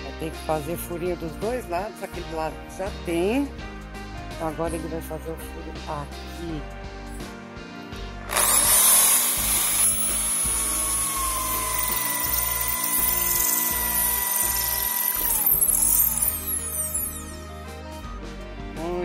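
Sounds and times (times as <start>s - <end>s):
electric drill boring into wood: 8.3s - 17.4s.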